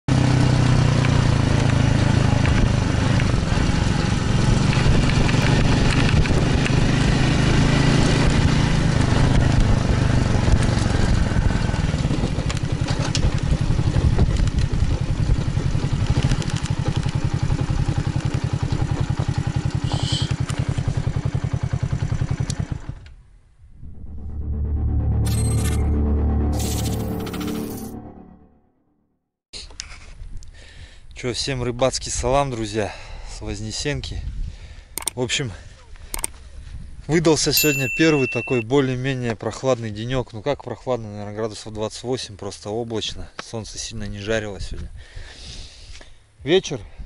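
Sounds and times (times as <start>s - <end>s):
small motorcycle engine running: 0.1s - 23.1s.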